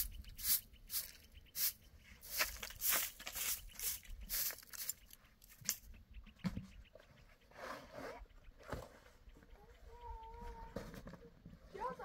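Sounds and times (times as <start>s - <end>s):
hand broom sweeping grit: 0.0s - 4.9s.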